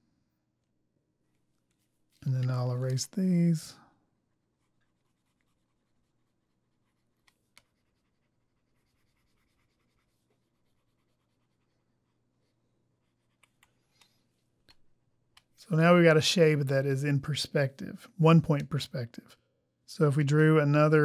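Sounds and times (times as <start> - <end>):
soft clicks: 13.4 - 15.6.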